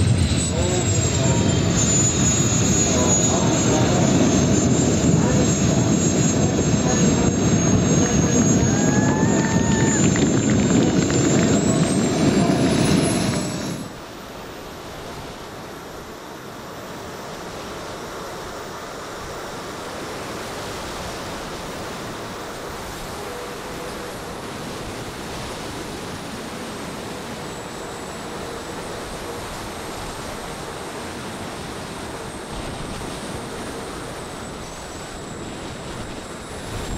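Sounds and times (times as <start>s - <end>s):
rushing wind noise: 0.0s - 14.0s, 20.3s - 36.9s
gas turbines whining: 0.0s - 14.2s.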